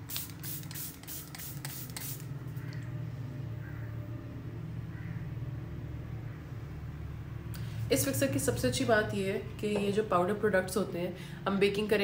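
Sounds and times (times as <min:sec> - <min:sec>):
spray bottle hissing: 0:00.0 - 0:02.3.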